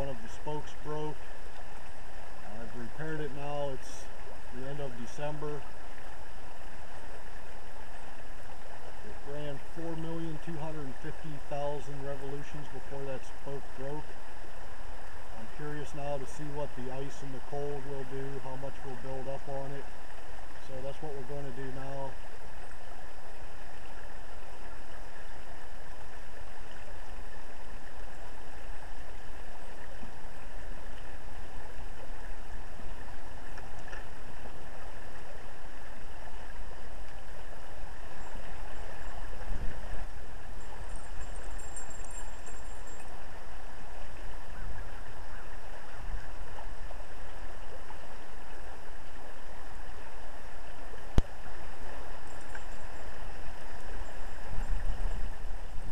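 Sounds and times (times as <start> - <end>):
river water rushing: 0.0 - 55.9.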